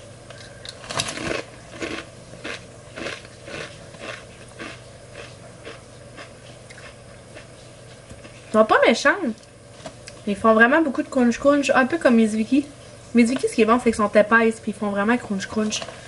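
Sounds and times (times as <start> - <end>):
chewing potato chips: 0.3 - 8.4.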